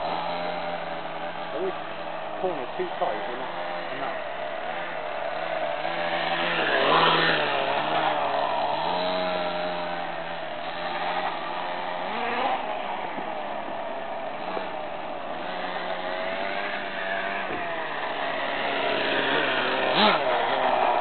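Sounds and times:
toy motorbike motor revving: 0:00.0 - 0:21.0.

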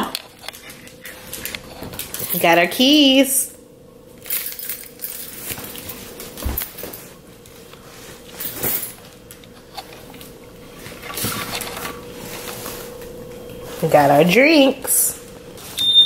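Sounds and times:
clinking and rustling of objects: 0:00.0 - 0:02.7, 0:04.2 - 0:07.2, 0:08.3 - 0:13.0
faint hum: 0:00.0 - 0:16.0.

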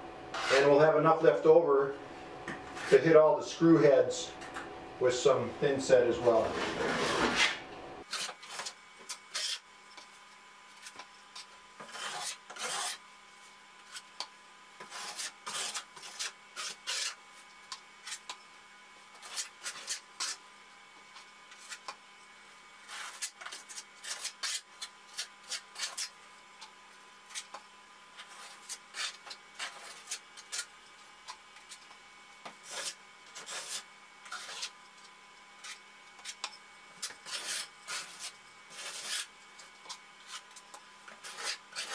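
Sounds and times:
trowel scraping mortar: 0:00.3 - 0:00.8, 0:06.3 - 0:09.6, 0:10.8 - 0:13.0, 0:14.8 - 0:17.2, 0:19.2 - 0:20.4, 0:22.8 - 0:26.2, 0:28.2 - 0:30.7, 0:32.6 - 0:34.8, 0:35.6 - 0:41.9
mortar scraped out of bucket: 0:06.4 - 0:08.7.

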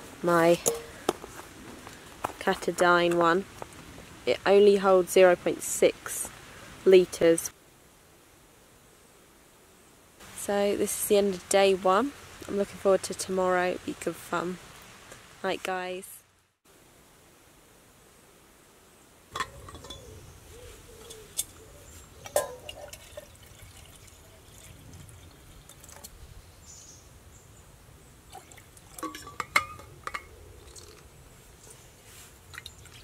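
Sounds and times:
metallic clinks and knocks: 0:00.6 - 0:01.0, 0:19.4 - 0:20.1, 0:29.0 - 0:30.3
water pouring into a pot: 0:22.4 - 0:26.1.

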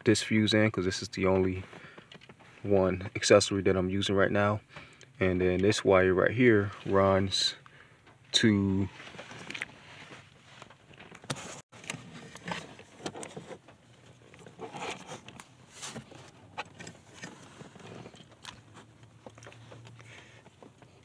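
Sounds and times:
hands handling car wiring: 0:06.4 - 0:21.0.

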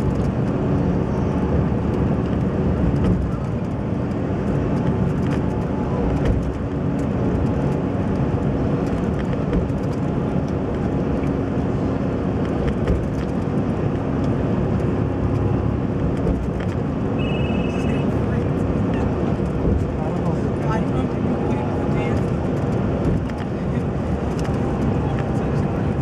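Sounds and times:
road and engine rumble: 0:00.0 - 0:26.0
short high beep: 0:17.2 - 0:18.0.

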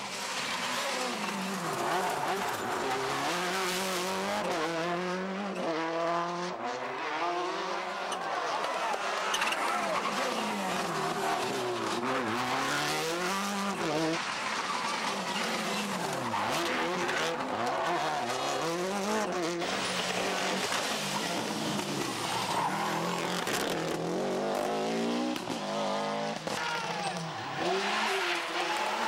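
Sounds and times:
rally car engines revving hard: 0:00.0 - 0:29.0.

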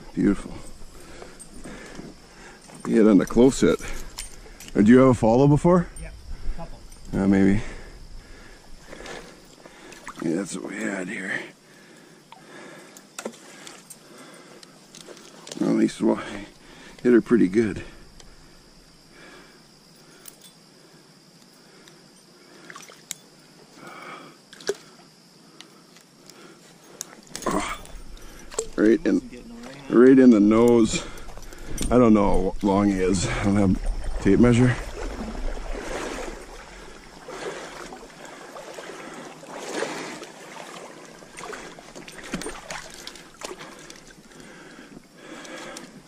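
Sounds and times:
stream water trickling: 0:08.1 - 0:10.8, 0:27.0 - 0:46.0
metal lure jingling: 0:27.3 - 0:29.5.

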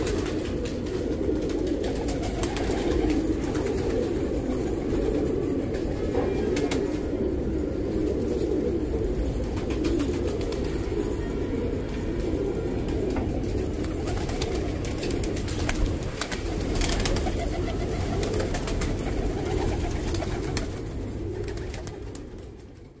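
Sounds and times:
pigeons cooing: 0:00.0 - 0:23.0.

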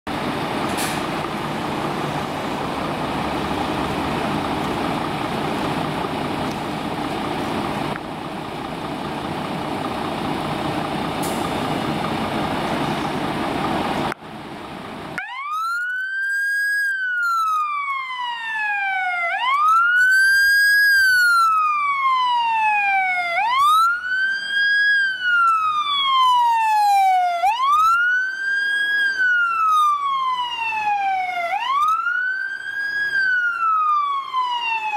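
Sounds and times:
fire engine diesel engine running: 0:00.1 - 0:15.5
siren wailing: 0:15.2 - 0:34.9.

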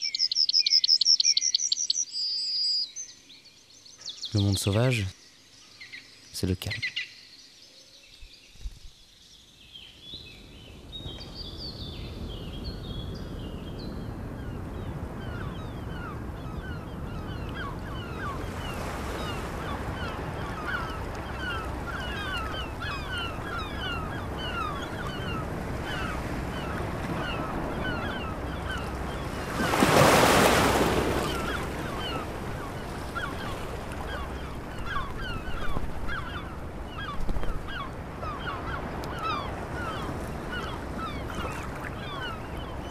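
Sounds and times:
surf: 0:14.3 - 0:42.9
flock of birds calling: 0:14.9 - 0:42.9.

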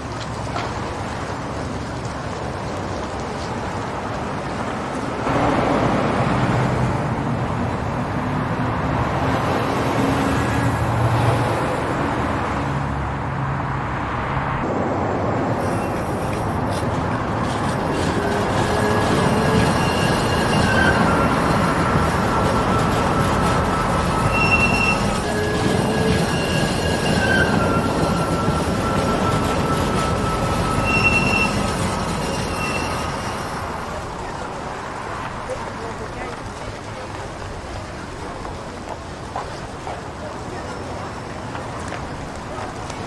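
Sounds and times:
street traffic engines: 0:00.0 - 0:43.0
tram wheels squealing on rails: 0:15.5 - 0:43.0.

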